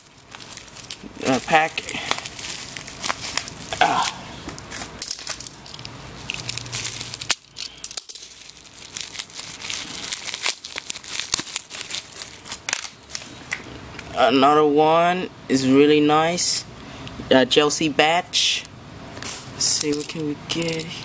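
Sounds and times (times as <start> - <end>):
bubble wrap crinkling: 0.0 - 13.6.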